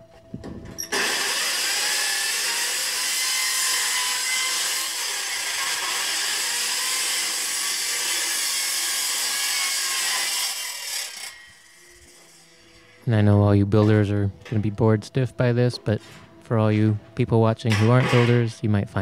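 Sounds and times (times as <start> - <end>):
circular saw cutting sheet metal: 0.8 - 13.1, 17.6 - 18.6.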